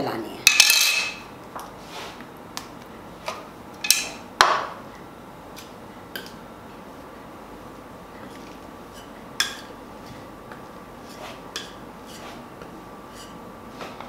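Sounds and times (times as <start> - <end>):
metal spatula scraping on stone: 11.0 - 12.4.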